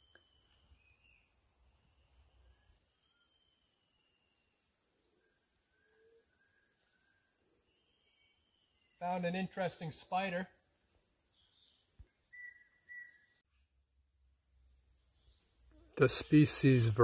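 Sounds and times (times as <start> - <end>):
thin whistled bird notes: 0.0 - 4.6, 5.2 - 9.0, 11.3 - 13.4
high insect drone: 0.0 - 17.0.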